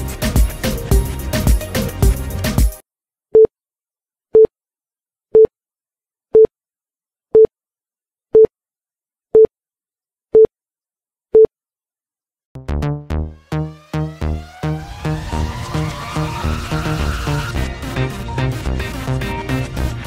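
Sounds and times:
upbeat electronic music: 0:00.0 - 0:02.8, 0:12.6 - 0:20.0.

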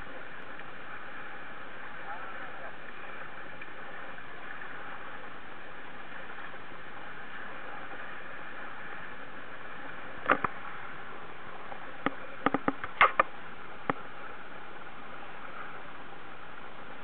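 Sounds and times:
water rushing along hull: 0:00.0 - 0:17.0
sharp knocks and clicks: 0:12.0 - 0:14.0.

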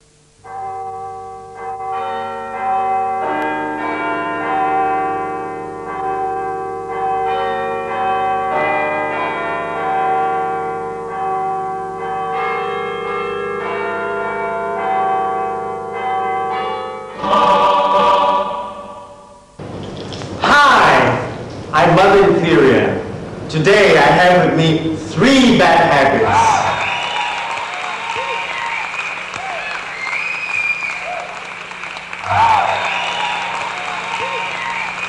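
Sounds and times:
church bells ringing: 0:00.4 - 0:19.6, 0:31.9 - 0:35.0.

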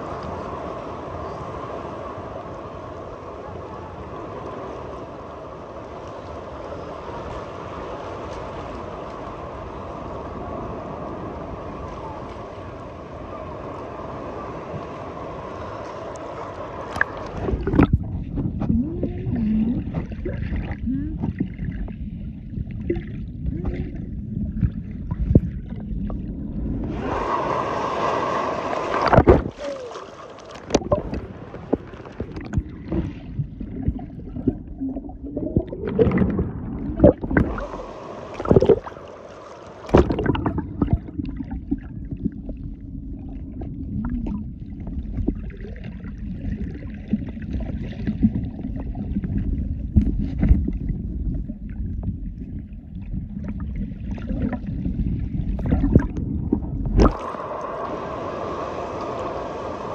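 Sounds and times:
muffled water sloshing and gurgling: 0:00.0 - 0:59.9
rushing water splash: 0:14.2 - 0:21.9, 0:24.6 - 0:42.8, 0:53.4 - 0:59.9
steady low rumble: 0:16.6 - 0:27.2, 0:30.7 - 0:39.0, 0:39.9 - 0:58.2.

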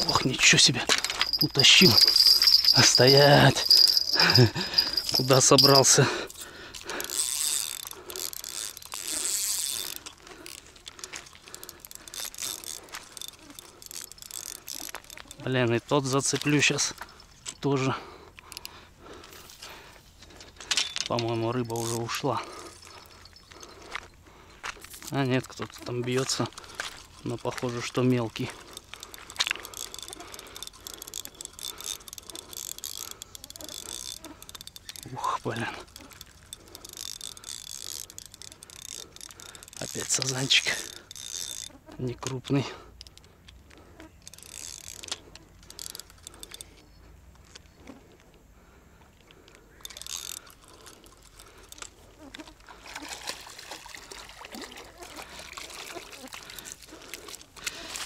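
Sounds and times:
fishing reel clicking: 0:00.0 - 0:18.8, 0:20.3 - 0:23.9, 0:24.8 - 0:47.6, 0:49.3 - 0:54.2.

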